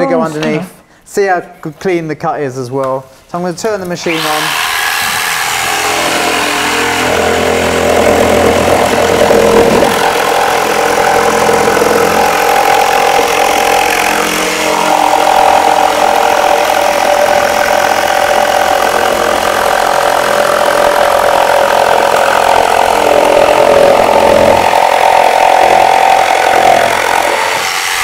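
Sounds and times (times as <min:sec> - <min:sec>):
jigsaw cutting board: 0:04.0 - 0:28.0.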